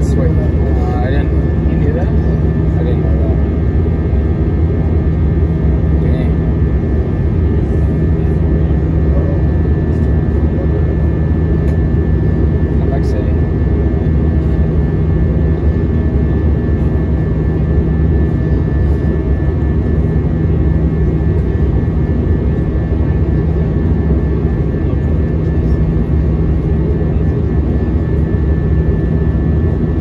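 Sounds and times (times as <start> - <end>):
high steady whine: 0.0 - 30.0
jet engine and airflow rumble: 0.0 - 30.0.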